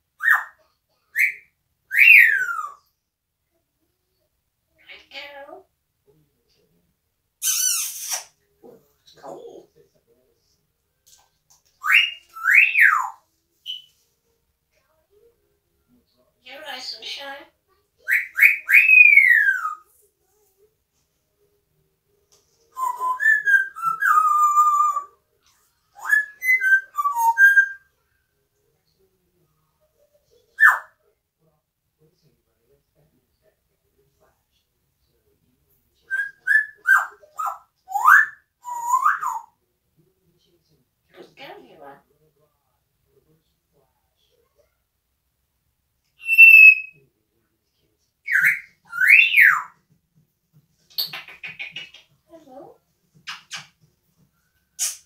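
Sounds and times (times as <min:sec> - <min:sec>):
parrot whistling: 0:11.8 - 0:13.9, 0:46.2 - 0:47.0, 0:48.3 - 0:49.7
parrot whistling a tune: 0:22.7 - 0:25.1, 0:26.0 - 0:27.9, 0:46.2 - 0:47.0, 0:48.3 - 0:49.7.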